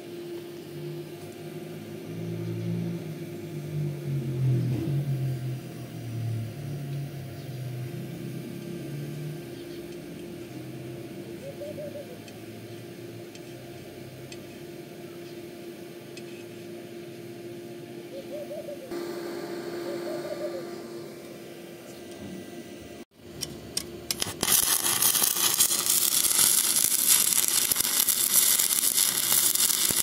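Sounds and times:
steady hum: 0.0 - 30.0
soft hooting calls: 11.3 - 12.2, 18.1 - 18.9, 19.7 - 21.0.

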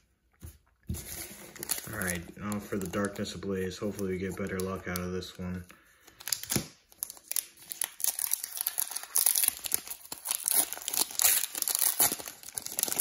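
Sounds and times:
foil wrapper crinkling: 6.2 - 13.0.

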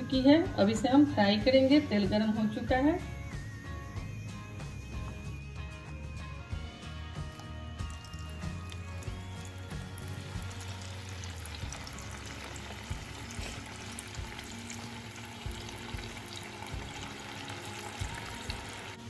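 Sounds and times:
soft background music: 0.0 - 19.0
food deep-frying in oil: 7.4 - 19.0.

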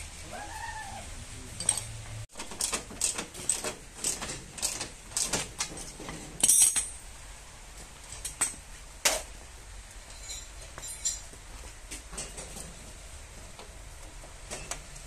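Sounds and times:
metal car parts clinking: 1.6 - 7.1, 10.0 - 11.3
ringing metal clatter: 10.0 - 11.3.

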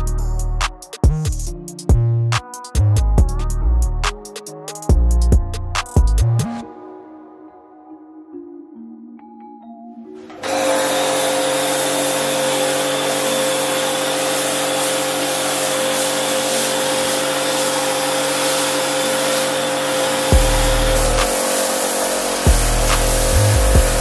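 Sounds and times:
pressure washer spraying: 10.3 - 24.0.

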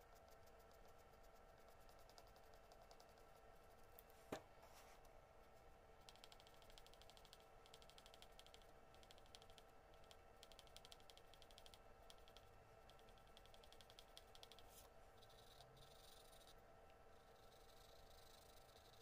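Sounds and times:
pencil scratching on paper: 0.0 - 4.9, 11.6 - 16.6
faint steady hum: 0.0 - 19.0.

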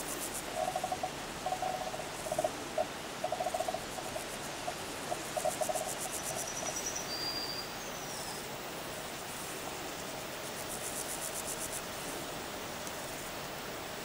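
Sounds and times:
pulsing insect trill: 0.0 - 8.4
steady hiss: 0.0 - 14.0.

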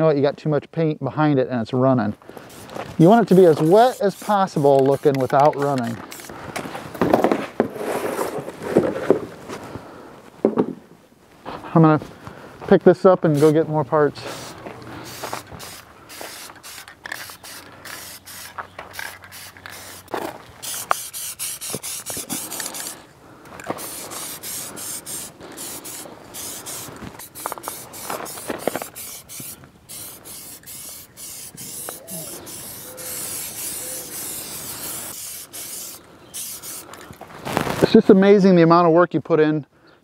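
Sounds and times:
spray-paint can hissing: 2.5 - 6.3, 13.3 - 13.6, 14.2 - 23.0, 23.8 - 36.9.

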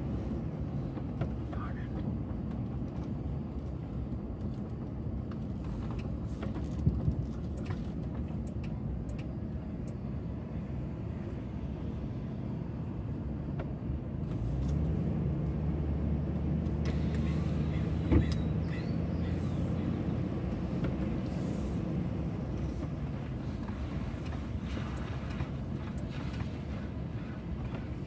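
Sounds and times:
vehicle engine and tyres rumbling: 0.0 - 28.0.

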